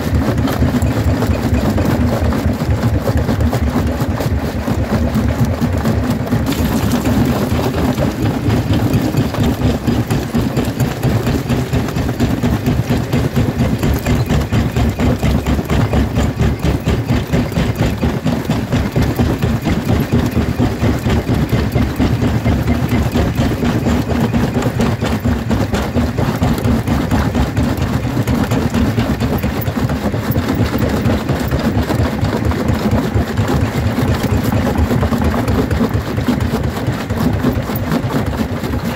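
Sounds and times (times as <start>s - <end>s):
jaw crusher machine drone: 0.0s - 38.9s
stone crunching and cracking: 6.4s - 11.2s.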